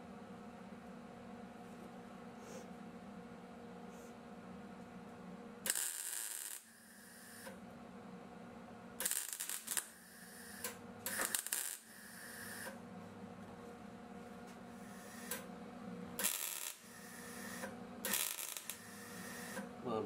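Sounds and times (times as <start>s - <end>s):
welder crackling and sizzling: 5.7s - 7.4s, 9.0s - 12.7s, 16.2s - 19.6s.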